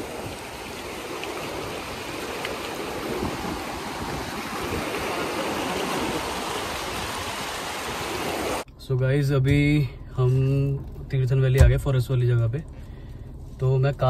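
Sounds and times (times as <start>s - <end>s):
river rushing over boulders: 0.0s - 8.6s.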